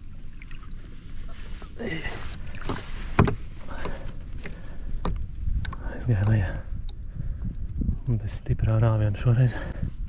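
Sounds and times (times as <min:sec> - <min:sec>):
river water splashing: 0:00.0 - 0:04.4.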